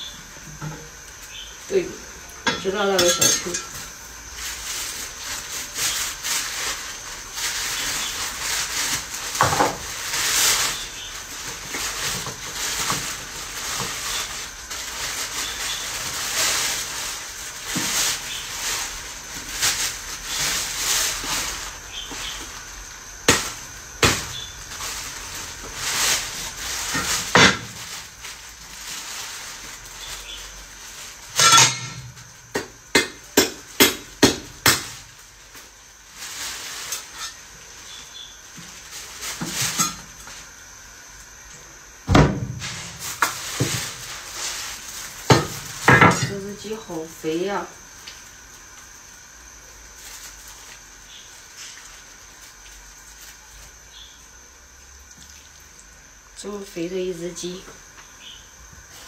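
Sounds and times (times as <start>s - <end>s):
cookware and utensils clinking: 2.4s - 3.9s, 31.4s - 32.0s.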